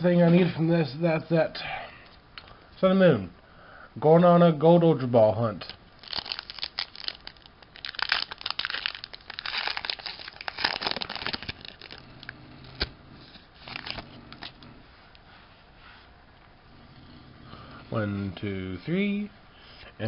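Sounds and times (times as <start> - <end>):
foil wrapper crinkling and tearing: 6.0 - 12.9, 13.6 - 14.6.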